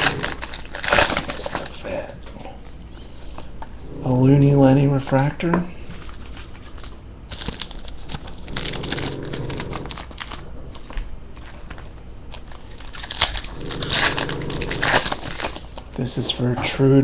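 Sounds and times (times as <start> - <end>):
foil wrappers crinkling: 0.0 - 2.1, 5.9 - 16.3.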